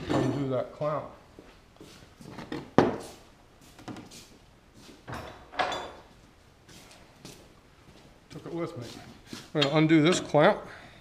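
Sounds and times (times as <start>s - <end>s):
tools knocking on wooden workbench: 2.5s - 3.0s.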